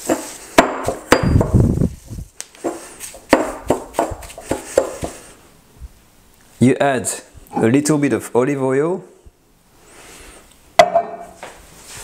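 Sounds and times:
stone pestle pounding in mortar: 0:00.0 - 0:01.6, 0:02.6 - 0:05.2.

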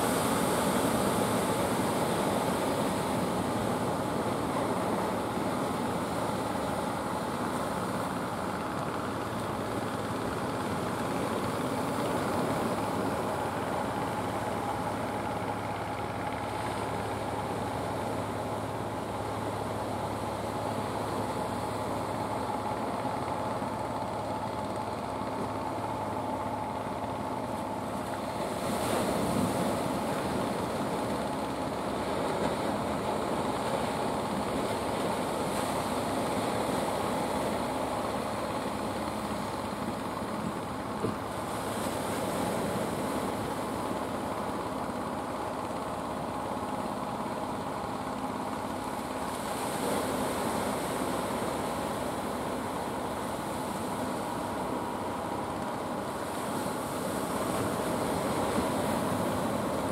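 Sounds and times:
boat engines humming: 0:00.0 - 0:59.9
surf on rocks: 0:27.4 - 0:59.9.

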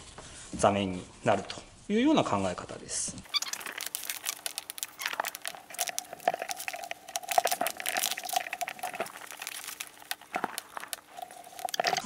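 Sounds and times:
paper cord crackling: 0:03.2 - 0:12.0.

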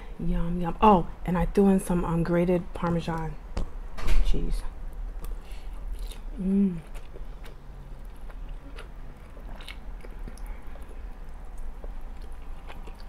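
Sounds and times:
person chewing and slurping: 0:05.2 - 0:13.0.

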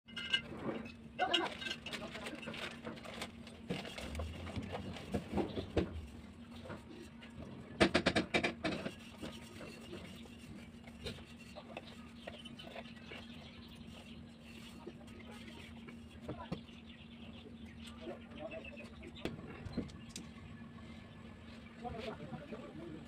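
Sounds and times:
small parts clicking and rattling: 0:01.2 - 0:05.2.

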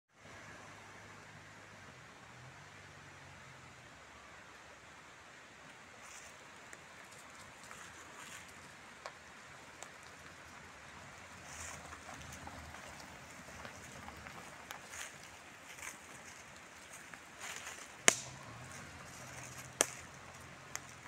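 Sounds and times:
tyres rolling over leaves: 0:06.0 - 0:21.0
leaves crackling and snapping: 0:11.4 - 0:21.0.

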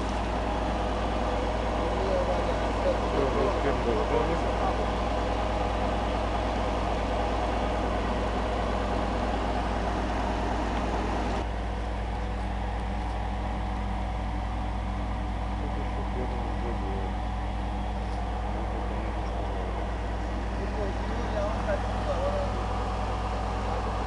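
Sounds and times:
drilling rig engine droning: 0:00.0 - 0:24.0.

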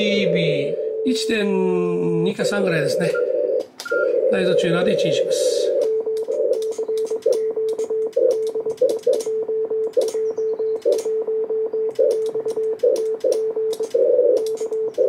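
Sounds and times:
morse code beeps: 0:00.0 - 0:15.0
sharp clicks: 0:03.6 - 0:04.0, 0:05.8 - 0:15.0.

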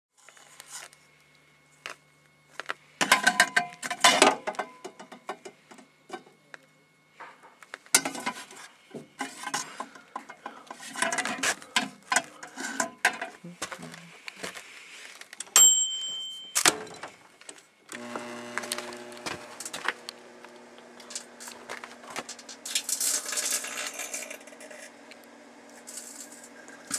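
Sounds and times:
aluminium foil rustling: 0:21.0 - 0:24.9, 0:25.7 - 0:26.9
small parts clattering: 0:21.0 - 0:24.9, 0:25.7 - 0:26.9.

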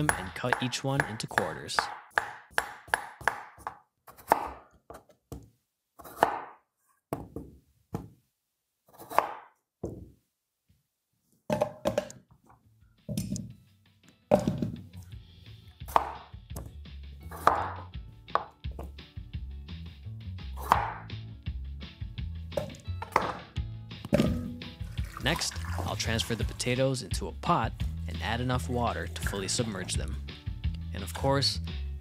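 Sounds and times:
background music: 0:00.0 - 0:03.4, 0:12.9 - 0:32.0
knife chopping on wooden board: 0:00.0 - 0:08.2, 0:08.9 - 0:10.1, 0:15.9 - 0:16.7, 0:17.3 - 0:19.0, 0:20.6 - 0:21.1, 0:22.6 - 0:23.4.

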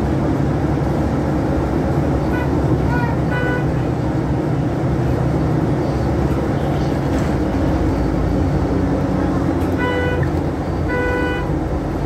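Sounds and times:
bus engine rumble: 0:00.0 - 0:12.0.

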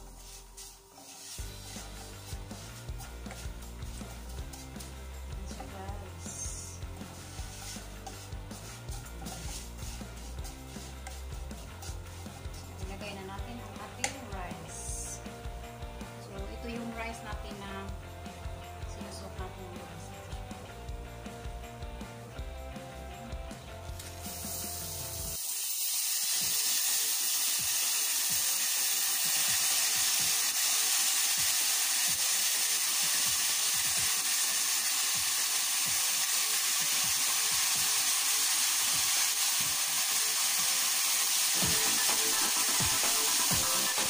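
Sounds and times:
rice sizzling in butter: 0:00.0 - 0:12.8, 0:24.0 - 0:44.0.

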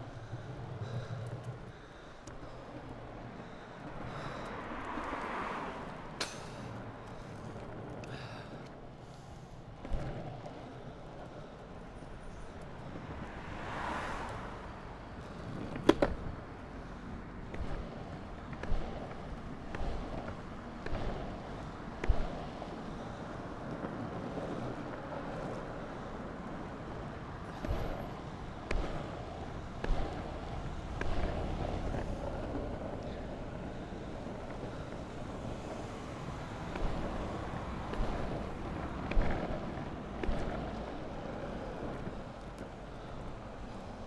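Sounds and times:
longboard wheels rolling on asphalt: 0:00.0 - 0:44.0
foot scuffing road: 0:27.5 - 0:33.2, 0:36.4 - 0:43.1.

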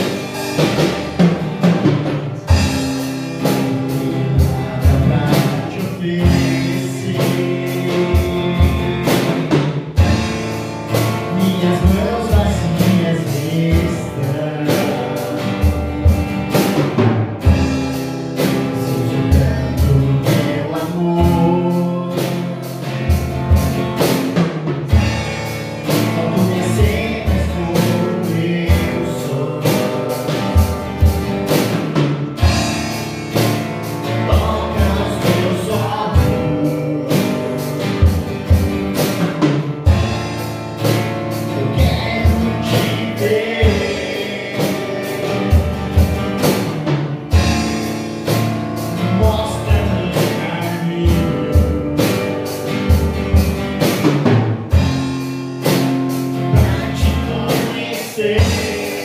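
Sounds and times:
acoustic guitar chords: 0:00.0 - 0:59.0
person singing: 0:02.0 - 0:09.6, 0:11.0 - 0:15.9, 0:18.4 - 0:23.2, 0:25.9 - 0:30.7, 0:34.0 - 0:38.2, 0:41.5 - 0:46.6, 0:49.0 - 0:52.6, 0:56.3 - 0:59.0.

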